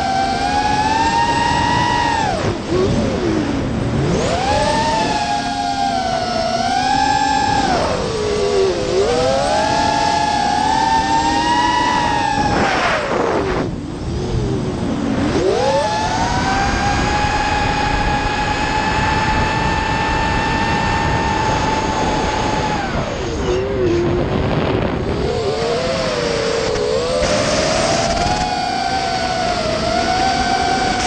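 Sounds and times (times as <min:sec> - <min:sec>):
drone motors whining: 0:00.0 - 0:31.0
wind rush: 0:00.0 - 0:31.0.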